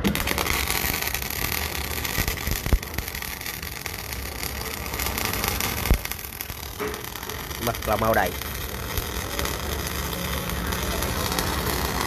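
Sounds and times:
welding arc crackling and hissing: 0:00.0 - 0:12.0
welding pops: 0:00.0 - 0:12.0.

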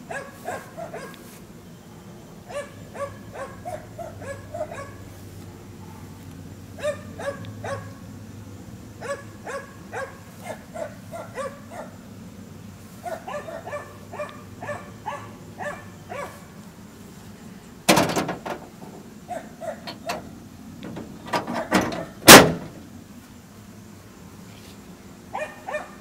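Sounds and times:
dog barking: 0:00.0 - 0:01.3, 0:02.4 - 0:05.1, 0:06.8 - 0:08.0, 0:09.0 - 0:12.0, 0:13.0 - 0:16.5, 0:19.3 - 0:20.2, 0:25.3 - 0:26.0
loud rattling knock: 0:17.9 - 0:19.0, 0:20.8 - 0:22.8.

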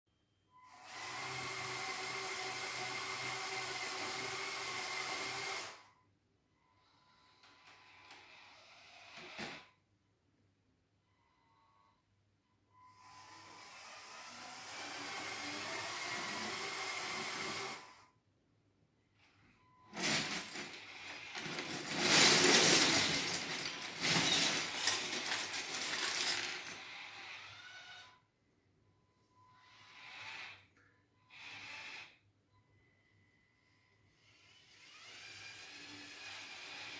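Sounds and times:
plastic toy bricks clattering: 0:20.0 - 0:26.8.

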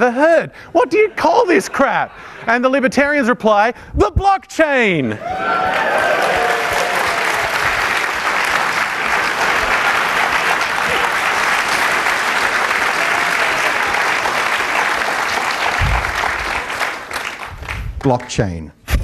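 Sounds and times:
large audience applauding: 0:05.2 - 0:18.2.

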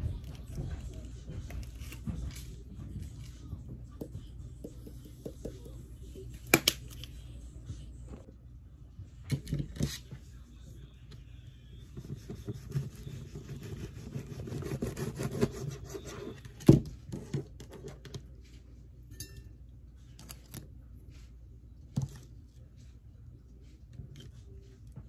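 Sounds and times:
knife sawing through fruit: 0:12.5 - 0:16.2.

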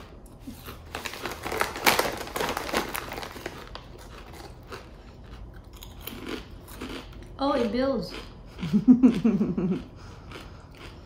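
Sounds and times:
chip bag crinkling: 0:00.4 - 0:07.0.

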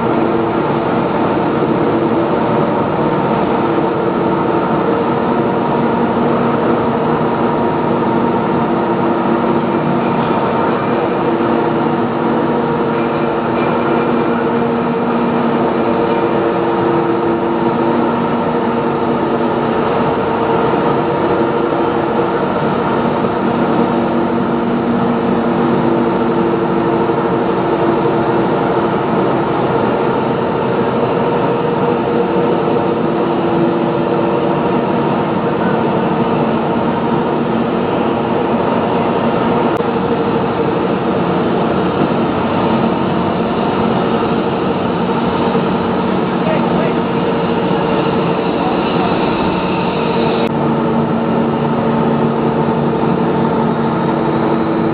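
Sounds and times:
industrial machinery din: 0:00.0 - 0:54.9
steady machine humming: 0:00.0 - 0:54.9.

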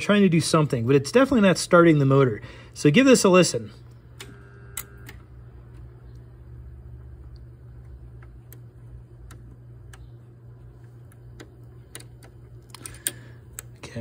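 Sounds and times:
low electric hum: 0:00.0 - 0:14.0.

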